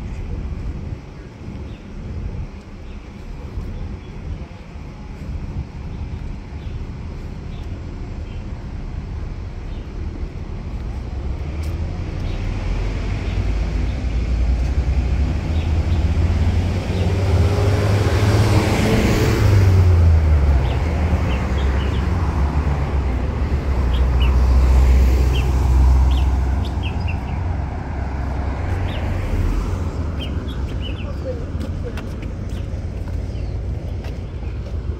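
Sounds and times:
traffic rumble: 0.0 - 34.9
small birds chirping: 25.3 - 27.5, 30.1 - 34.8.

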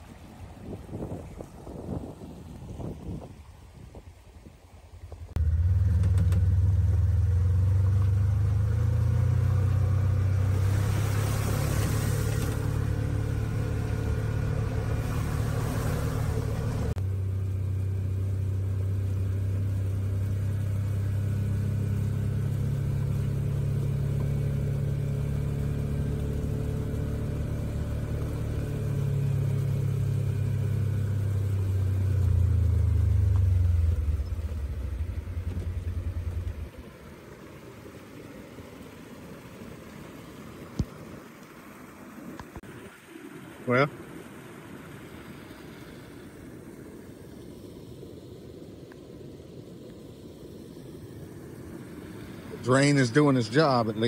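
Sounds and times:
vehicle engine at low revs: 0.0 - 54.0
rushing hiss: 10.4 - 17.0.

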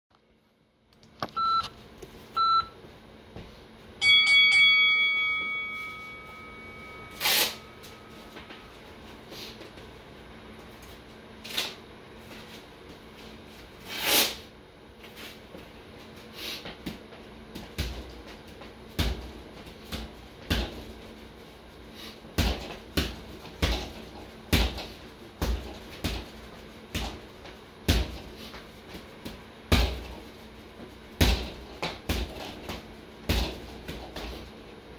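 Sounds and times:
short beeps: 1.3 - 1.7, 2.4 - 2.8
bell-like electronic tone: 4.0 - 8.8
gloved punches on punching bag: 22.3 - 27.2, 27.8 - 28.3, 29.2 - 30.2, 31.2 - 34.3.

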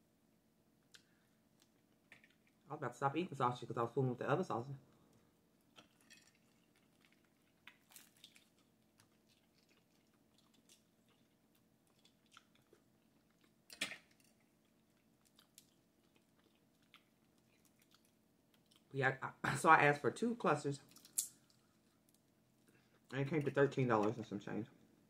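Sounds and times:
quiet chewing: 0.8 - 2.7, 4.9 - 18.9, 20.8 - 23.2.

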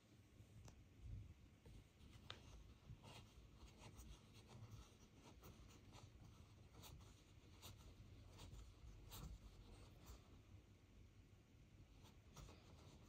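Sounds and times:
soft irregular ticks and scratches: 1.6 - 10.7, 11.8 - 13.0.

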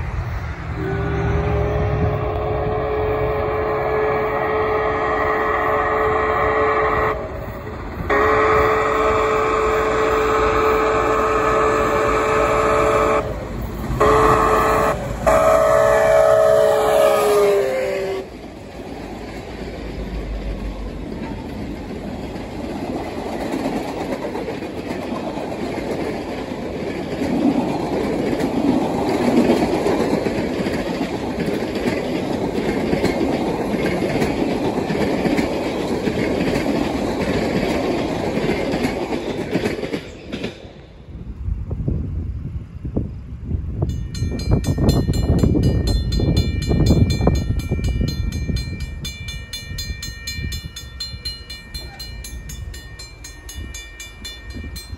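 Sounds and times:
train wheels rumbling on rails: 0.0 - 54.9
steam locomotive whistle: 0.7 - 18.4.

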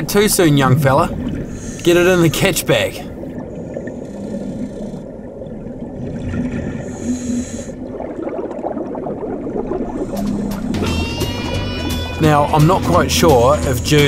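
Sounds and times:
underwater bubbling rumble: 0.0 - 13.9
regulator breath hissing: 1.5 - 2.2, 6.8 - 7.8.

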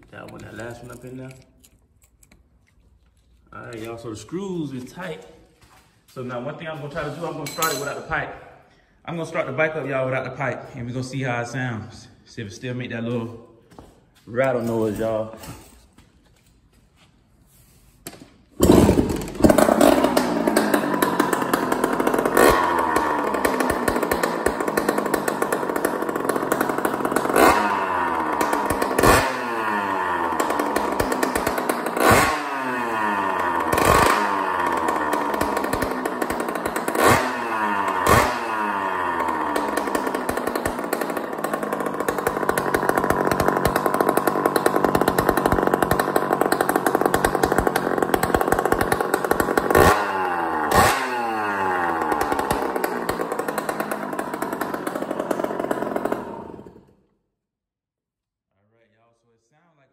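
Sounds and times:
two-stroke engine revving: 18.6 - 57.0.

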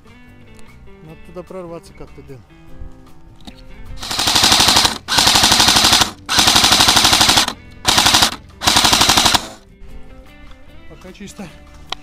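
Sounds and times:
airsoft rifle firing bursts: 4.0 - 9.6.

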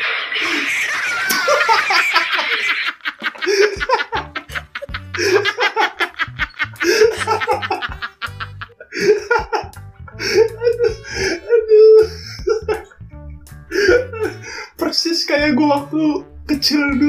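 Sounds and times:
young man laughing: 0.4 - 14.5
music with beat and bass: 3.7 - 14.4.

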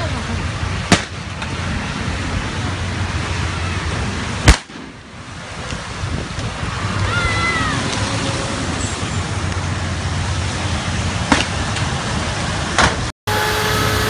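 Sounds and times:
sharp bangs: 0.8 - 1.4, 4.4 - 5.1.

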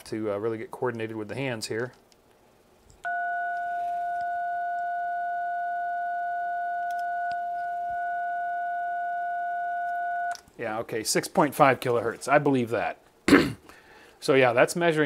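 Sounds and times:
keypad tone: 3.1 - 10.4.

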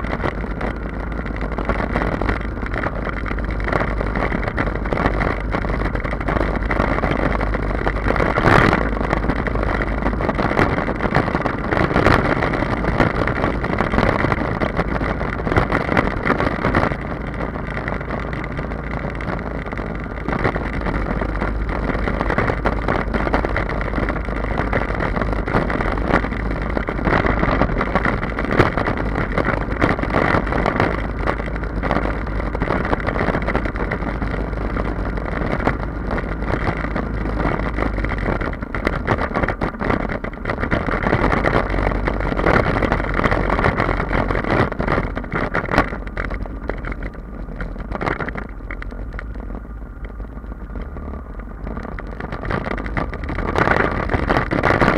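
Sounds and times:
motorcycle engine running steadily: 0.0 - 54.9
wind rushing over microphone: 0.0 - 54.9.

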